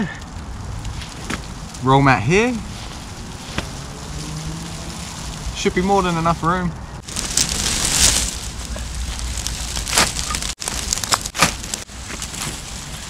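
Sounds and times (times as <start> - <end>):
rustling on dry leaves: 0.0 - 13.0
dry sticks handled: 7.0 - 13.0.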